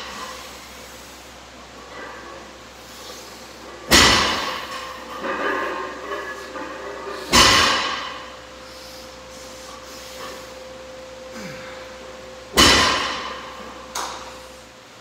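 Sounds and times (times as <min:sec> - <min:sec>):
faint steady hum: 0:00.0 - 0:15.0
heavy ringing impacts: 0:03.8 - 0:09.4, 0:10.1 - 0:14.6.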